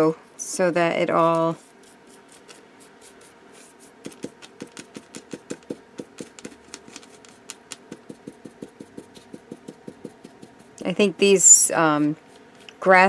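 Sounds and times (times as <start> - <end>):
paintbrush dabbing taps: 4.0 - 10.9.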